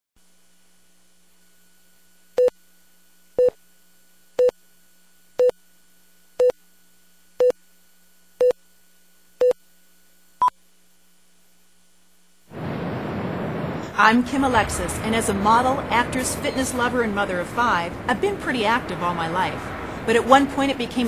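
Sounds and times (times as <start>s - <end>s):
faint steady hum: 0.2s - 21.0s.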